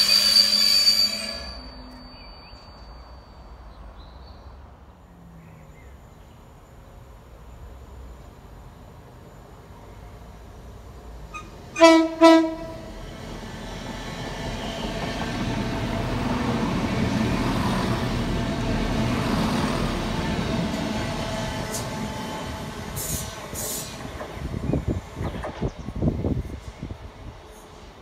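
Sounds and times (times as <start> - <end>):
trains rumbling past: 0.0 - 28.0
train horn toots: 11.3 - 12.9.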